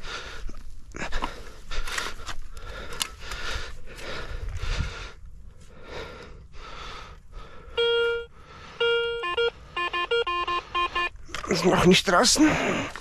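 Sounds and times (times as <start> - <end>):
metal detector beep: 7.8 - 11.2.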